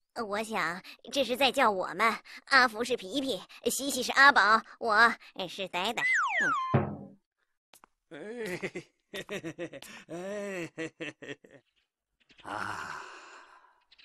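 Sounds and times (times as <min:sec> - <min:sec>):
long breathy sigh: 0:12.4 - 0:13.8.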